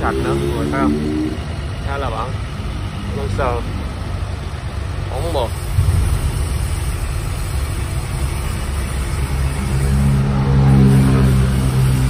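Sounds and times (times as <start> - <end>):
steady droning tone: 0.0 - 12.0
tractor engine idling: 1.4 - 10.5.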